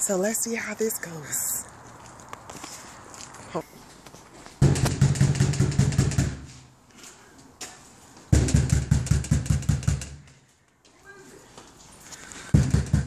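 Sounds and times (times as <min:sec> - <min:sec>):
rapid knocking on a door: 0:04.6 - 0:06.4, 0:08.3 - 0:10.2, 0:12.5 - 0:13.0.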